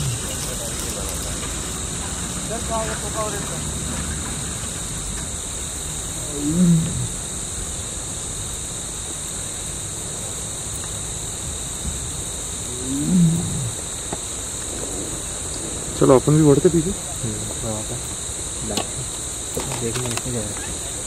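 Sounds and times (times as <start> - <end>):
tiger roaring: 0.0 - 7.8, 12.6 - 18.1.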